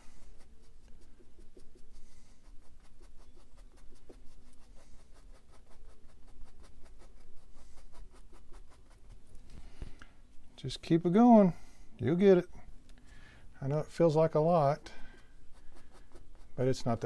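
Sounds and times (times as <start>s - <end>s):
brush scratching on canvas: 0.0s - 9.6s, 14.0s - 17.0s.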